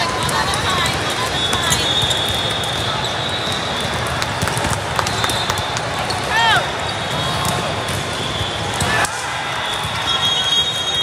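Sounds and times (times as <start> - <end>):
sports hall din: 0.0 - 11.0
volleyballs being hit: 0.2 - 3.1, 3.8 - 6.4.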